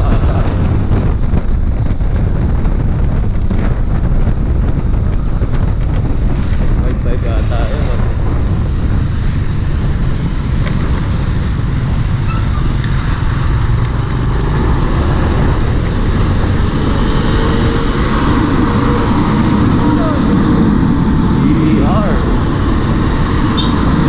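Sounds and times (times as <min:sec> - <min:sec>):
passing traffic: 0:00.0 - 0:24.0
wind rushing over microphone: 0:00.0 - 0:24.0
scooter engine: 0:09.4 - 0:24.0.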